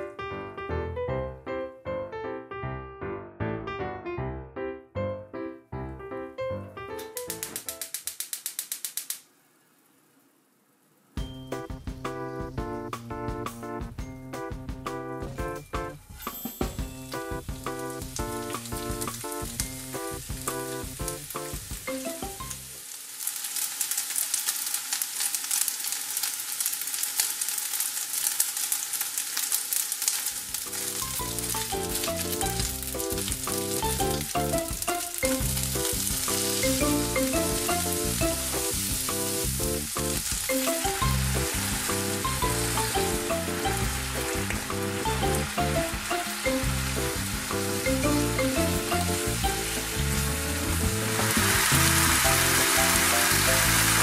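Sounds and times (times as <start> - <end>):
fish frying in oil: 7.2 - 12.1, 16.7 - 54.0
sauce sizzling in pan: 16.2 - 54.0.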